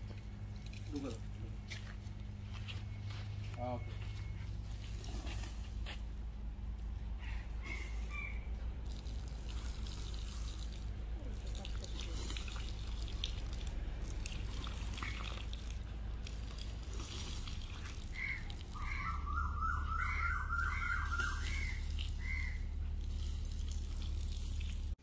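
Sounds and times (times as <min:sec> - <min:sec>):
steady low hum: 0:00.0 - 0:25.0
water running from garden hose: 0:07.9 - 0:19.3, 0:20.1 - 0:25.0.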